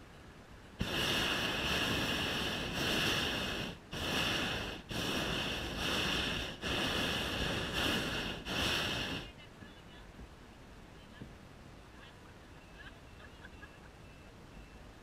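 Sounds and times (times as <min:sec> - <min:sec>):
propane burner roaring: 0:00.8 - 0:09.3.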